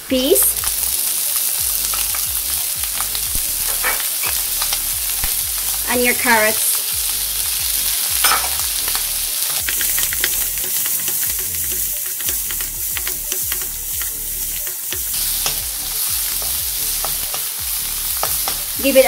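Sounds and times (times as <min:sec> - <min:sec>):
food sizzling in a wok: 0:00.0 - 0:19.0
spatula scraping a pan: 0:08.2 - 0:17.4.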